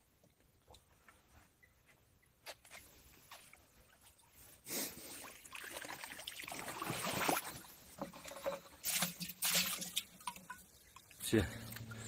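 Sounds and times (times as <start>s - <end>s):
water splashing and streaming: 5.0s - 12.0s
splashes into water barrel: 5.2s - 12.0s.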